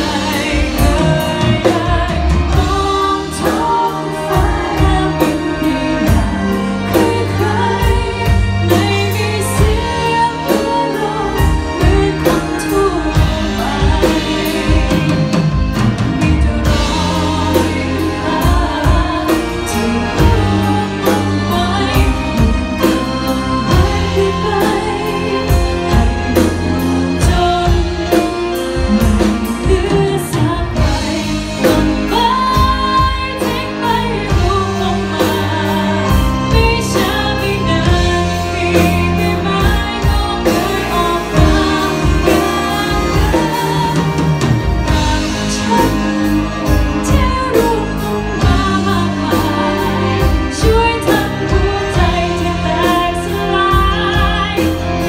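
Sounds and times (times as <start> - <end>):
electric guitar: 0.0 - 55.0
keyboard: 0.0 - 55.0
woman singing into a microphone: 0.0 - 55.0.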